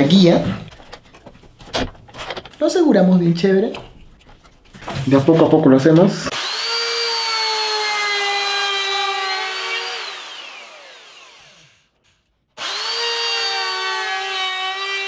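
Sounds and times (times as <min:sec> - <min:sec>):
router high whine: 0:06.3 - 0:15.0.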